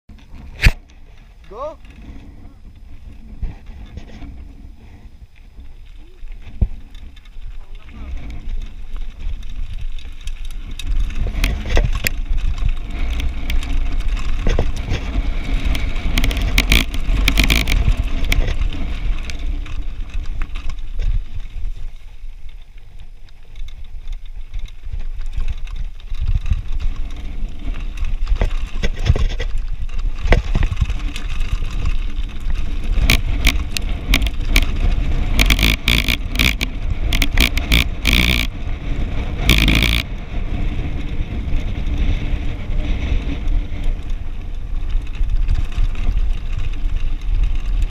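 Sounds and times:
bike rattling: 0.1 - 47.9
wind rumbling on microphone: 0.1 - 47.9
tyres crunching over stones: 5.7 - 38.6
dense bursts of clicking: 6.7 - 21.1, 29.8 - 38.6, 39.4 - 40.1.

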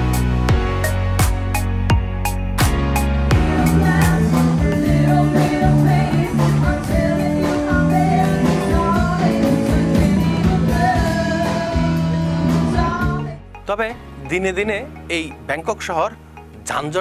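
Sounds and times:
drums keeping a steady beat: 0.0 - 13.3
bass notes: 0.0 - 17.0
woman singing into a microphone: 3.4 - 13.5.

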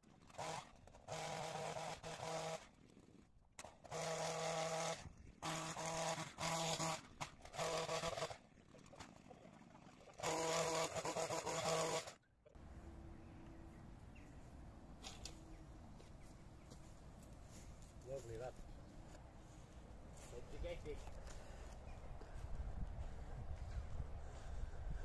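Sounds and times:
hedge trimmer cutting: 0.3 - 2.7, 3.6 - 8.3, 10.2 - 12.2.

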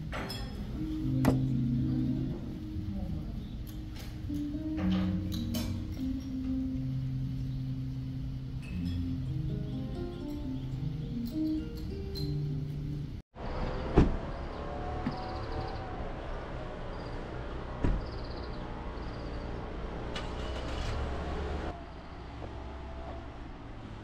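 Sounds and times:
background music: 0.0 - 13.2
outdoor traffic rumble: 0.0 - 24.0.

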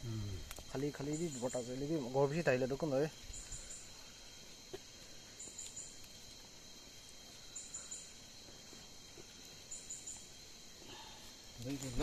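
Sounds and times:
insects high trill: 0.0 - 12.0
insects short high chirps: 0.0 - 12.0.

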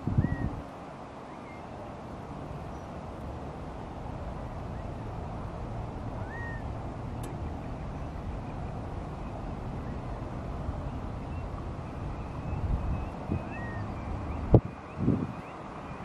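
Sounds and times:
background traffic rumble: 0.0 - 16.0
bird call: 6.2 - 10.1, 10.8 - 16.0.

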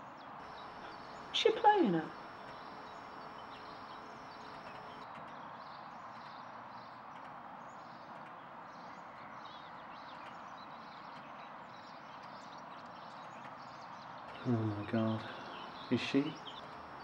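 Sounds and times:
faint bird chirps: 0.4 - 5.0, 13.8 - 17.0
steady hiss: 0.4 - 5.0, 14.4 - 17.0.

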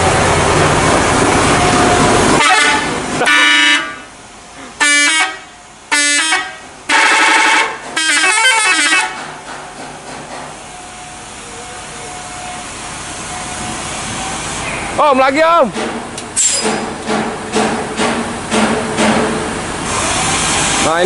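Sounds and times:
multi-tone musical air horn: 2.4 - 4.1, 4.8 - 9.2.

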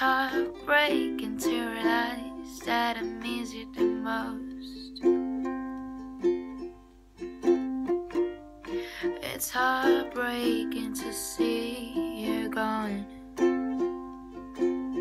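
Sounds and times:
person singing: 0.0 - 5.8, 8.6 - 14.8
ukulele strumming: 0.0 - 15.0.

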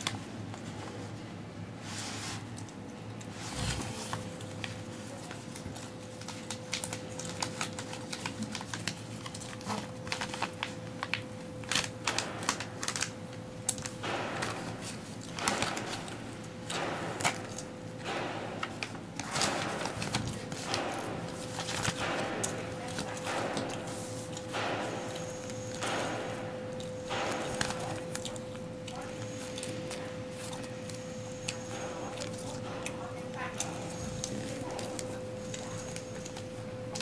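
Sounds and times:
packaging rustling and crinkling: 3.3 - 16.2, 18.6 - 24.7.

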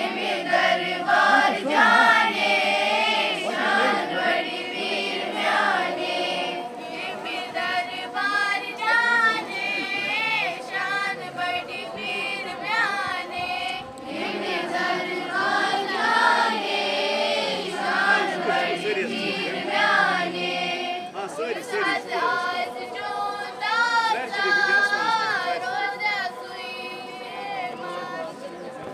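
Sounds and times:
children singing in unison: 0.0 - 28.9.

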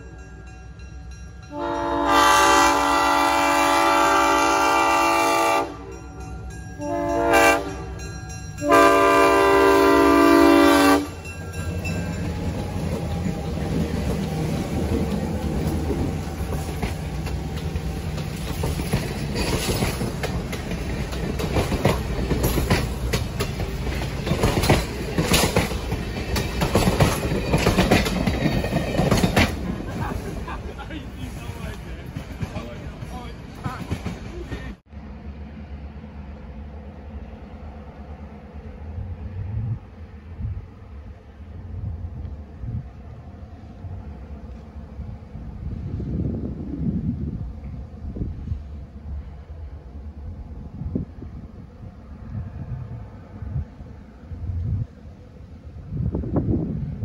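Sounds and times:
diesel locomotives rumbling past: 0.0 - 57.0
locomotive air horn: 1.5 - 6.0, 6.8 - 11.3
train wheels clicking over rail joints: 11.0 - 34.8.

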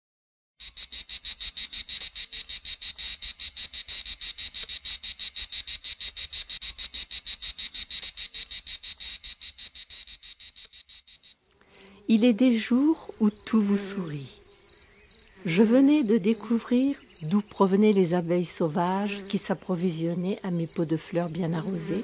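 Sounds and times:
insect chirping: 0.6 - 22.0.

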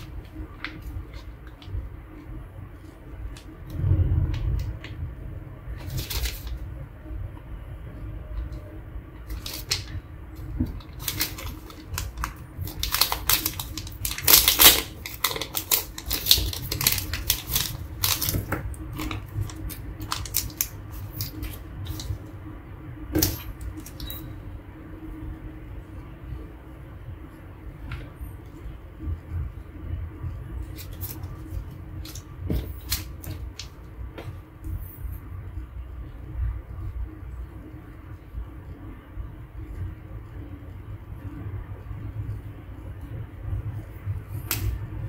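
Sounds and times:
plastic packaging crinkling: 5.8 - 6.7, 9.2 - 22.2.

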